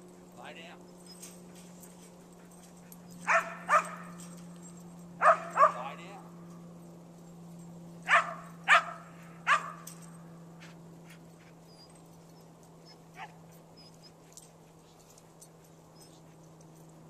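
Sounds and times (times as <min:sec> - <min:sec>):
dog barking: 0:03.2 - 0:04.3, 0:05.2 - 0:06.1, 0:08.0 - 0:09.9, 0:13.2 - 0:13.4.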